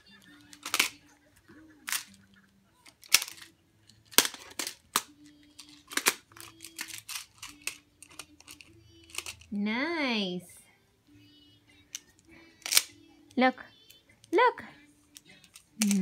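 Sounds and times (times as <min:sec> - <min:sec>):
plastic tiles clicking together: 0:00.4 - 0:01.0, 0:01.8 - 0:02.1, 0:02.9 - 0:09.5, 0:11.9 - 0:12.9, 0:15.1 - 0:16.0.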